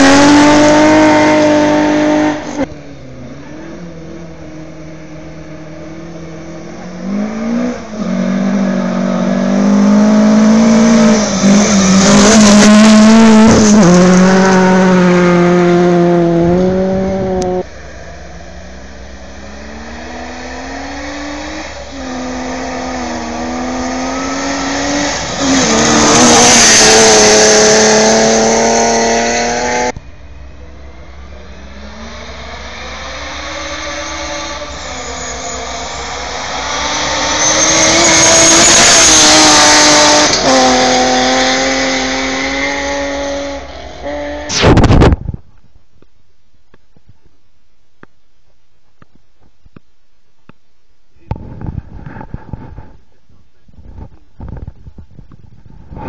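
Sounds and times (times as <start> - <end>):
engines revving through gears: 0.0 - 17.7, 18.7 - 30.0, 31.4 - 45.0
rally cars passing at full speed: 0.0 - 45.4.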